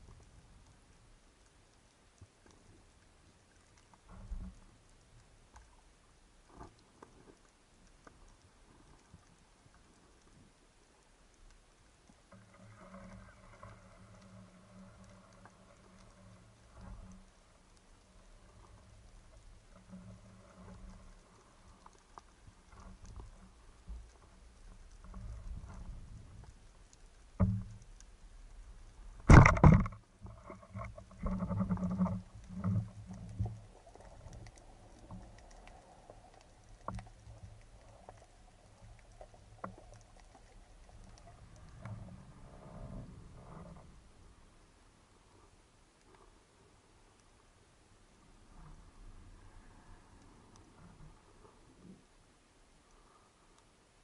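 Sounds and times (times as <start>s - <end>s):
underwater clicks crackling: 0.0s - 44.8s
knocks and rumbling underwater: 22.6s - 44.5s.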